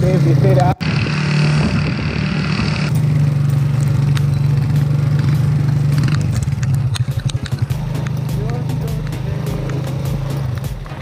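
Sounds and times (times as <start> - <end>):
rattling bumps: 0.0 - 11.0
vehicle engine running: 0.0 - 11.0.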